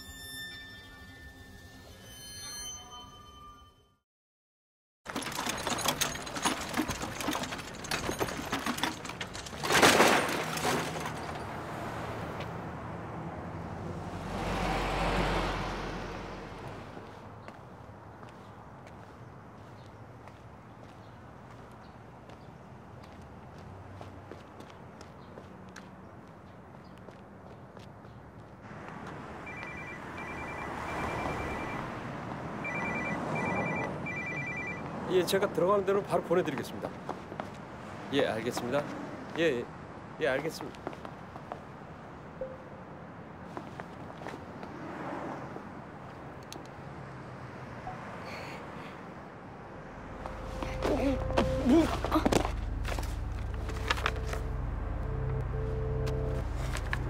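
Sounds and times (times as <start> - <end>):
two-tone phone ringtone: 0.0 - 4.0, 29.4 - 32.0, 32.6 - 34.9
scrap metal clattering: 5.1 - 11.4
city street traffic: 5.1 - 57.0
vehicle passing with rumble: 10.5 - 17.4, 46.8 - 57.0.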